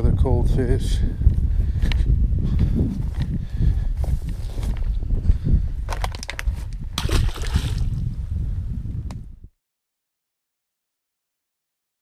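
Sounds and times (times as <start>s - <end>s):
water sloshing: 7.0s - 8.0s.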